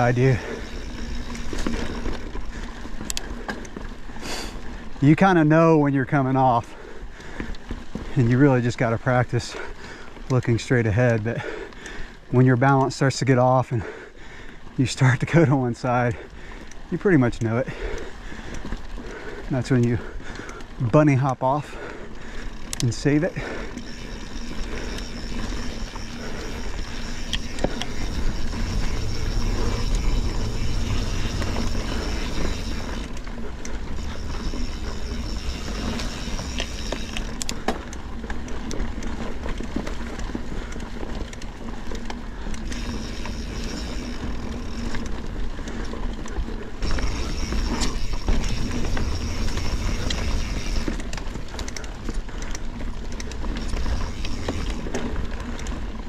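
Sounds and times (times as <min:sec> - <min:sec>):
rear hub buzzing: 0:00.0 - 0:04.6, 0:22.0 - 0:56.0
bike rattling: 0:00.0 - 0:56.0
bike tyres rolling on dirt: 0:00.0 - 0:56.0.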